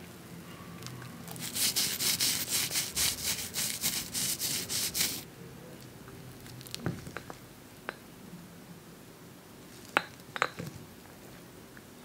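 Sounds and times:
rapid rhythmic rasping strokes: 1.4 - 5.2.

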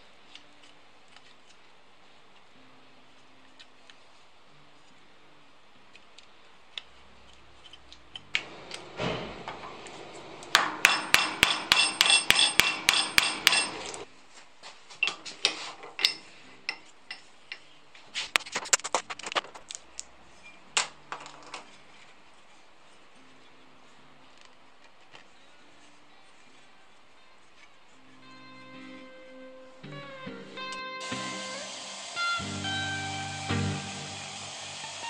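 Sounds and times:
tools knocking on workbench: 10.5 - 13.8
hammer tapping on metal: 10.5 - 14.0.

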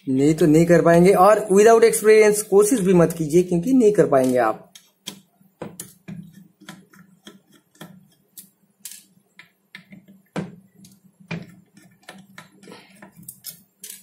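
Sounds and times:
screwdriver clicking on screws: 13.2 - 14.0.

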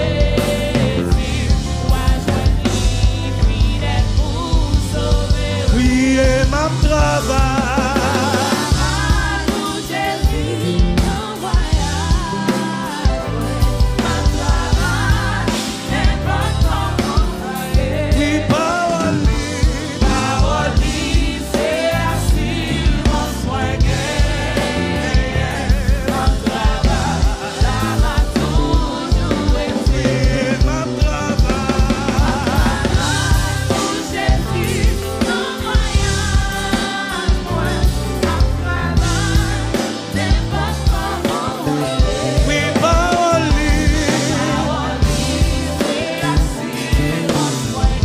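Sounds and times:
keyboard: 0.0 - 48.0
steady drum beat: 0.0 - 48.0
man singing into a microphone: 5.6 - 8.6, 18.0 - 20.6, 29.7 - 33.0, 42.4 - 44.5.

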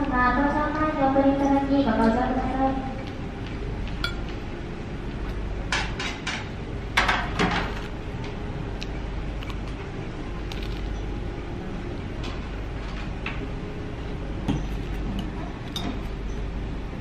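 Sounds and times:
low room hum: 0.0 - 17.0
knife clinking against tableware: 4.0 - 4.3.

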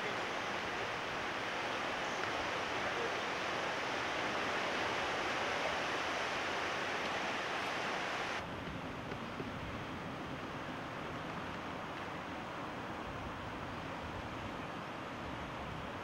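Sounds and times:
river water rushing: 0.0 - 8.5.

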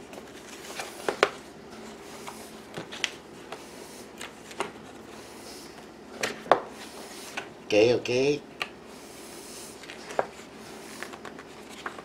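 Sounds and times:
paper rustling: 9.8 - 12.0.

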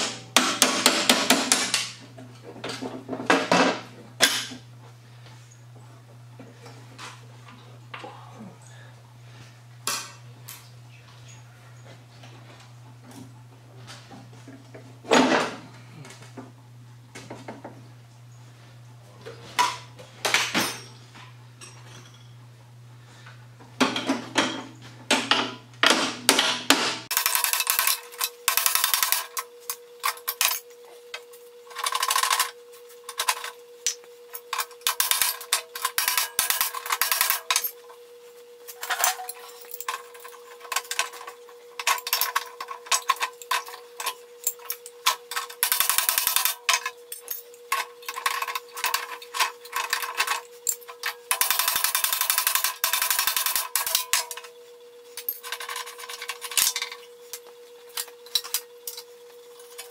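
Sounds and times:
low steady hum: 0.0 - 59.9
hand tools clanking on metal: 38.7 - 54.4.

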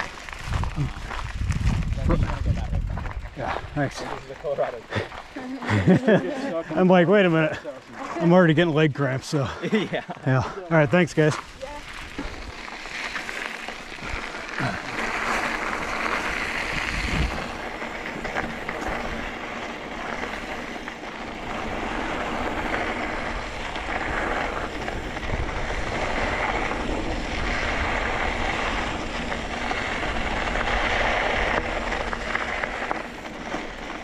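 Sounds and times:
wind gusting over microphone: 0.0 - 4.3, 13.9 - 33.8.

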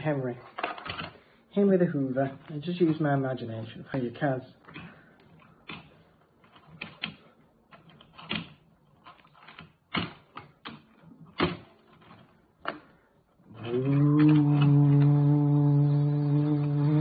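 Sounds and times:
plastic clicks and knocks: 4.6 - 12.9.

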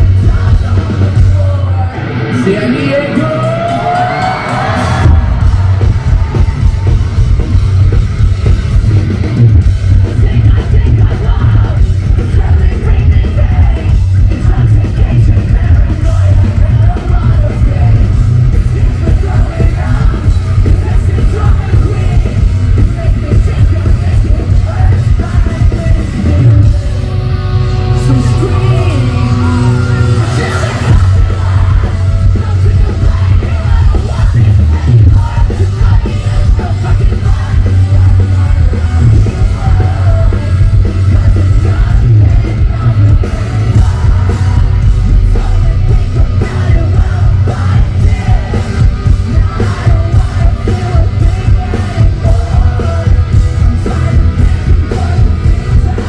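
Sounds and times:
rock band playing live: 0.0 - 56.0
sung and yelled vocals: 0.0 - 56.0.

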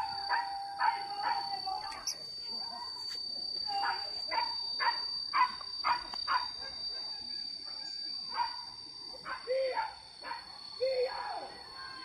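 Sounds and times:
hunting dogs barking: 0.0 - 2.0, 3.7 - 6.9, 8.3 - 10.5
high insect drone: 0.0 - 12.0.

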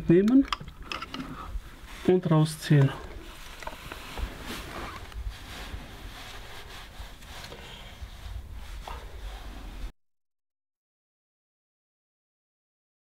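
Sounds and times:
metal parts clicking and knocking: 0.2 - 1.4.

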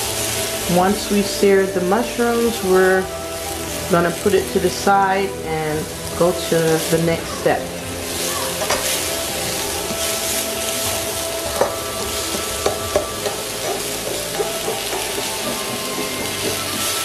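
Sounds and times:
vegetables sizzling in wok: 0.0 - 17.0
tongs knocking against pan: 11.6 - 16.6.

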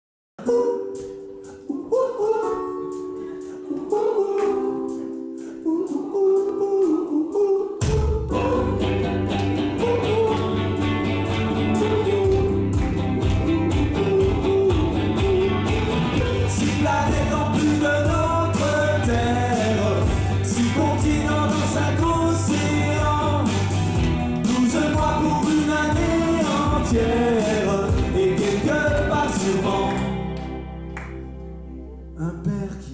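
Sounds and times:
man singing: 0.4 - 30.4, 32.2 - 32.9
keyboard: 0.4 - 32.9
electric guitar: 7.8 - 32.1
bass line: 7.8 - 32.9
steady drum beat: 12.2 - 29.9.

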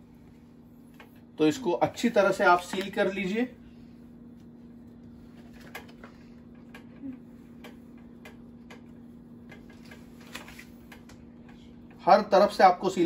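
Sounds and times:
steady low hum: 0.0 - 13.0
faint clicks and taps: 0.9 - 1.3, 4.4 - 12.0.

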